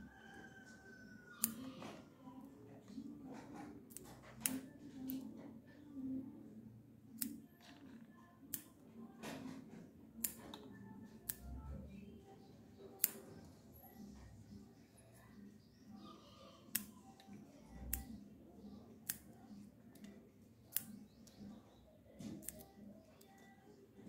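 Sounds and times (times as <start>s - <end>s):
scissors snipping: 1.3s - 1.8s, 2.9s - 5.4s, 10.2s - 11.6s, 12.9s - 13.4s, 16.6s - 23.6s.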